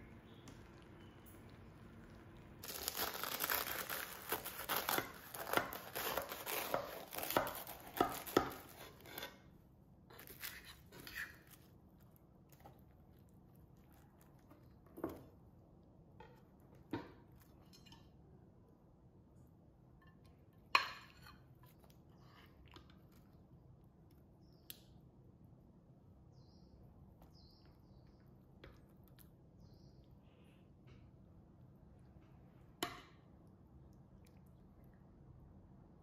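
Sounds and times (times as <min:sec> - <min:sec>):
pastry crust crackling: 0:00.0 - 0:09.5, 0:10.1 - 0:14.8
spoon scraping: 0:02.6 - 0:09.4, 0:10.1 - 0:11.6.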